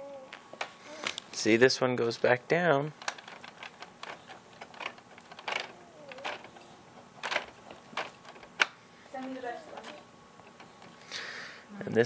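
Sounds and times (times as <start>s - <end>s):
plastic toy clicks and knocks: 3.0s - 6.6s, 7.2s - 10.8s.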